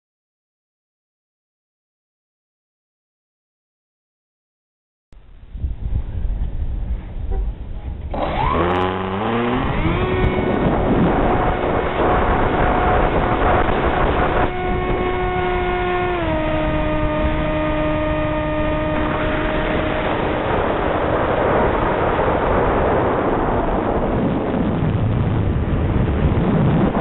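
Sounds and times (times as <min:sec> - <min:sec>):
wind rushing over microphone: 0:05.2 - 0:27.0
model airplane motor whining: 0:08.0 - 0:22.8.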